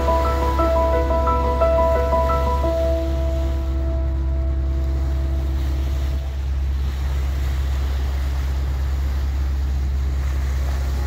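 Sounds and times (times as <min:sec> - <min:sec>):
bow wave rushing: 0:00.0 - 0:10.3
boat engine humming: 0:00.0 - 0:11.0.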